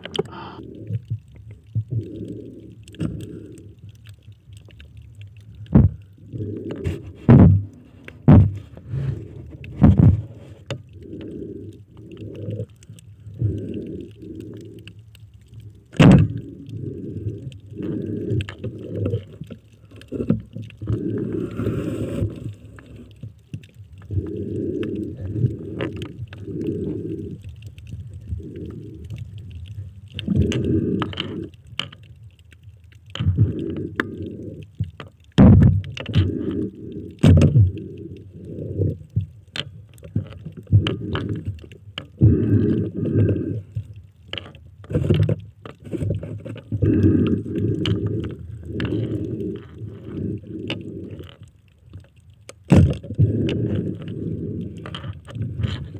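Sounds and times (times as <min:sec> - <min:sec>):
muffled underwater water surges: 0:00.0 - 0:55.9
sharp underwater knocks: 0:07.2 - 0:08.7, 0:09.7 - 0:10.3, 0:16.0 - 0:16.4.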